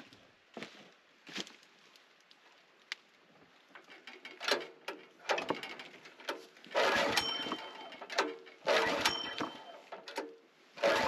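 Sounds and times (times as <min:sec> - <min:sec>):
engine cranking: 0:03.9 - 0:10.2, 0:10.8 - 0:11.0.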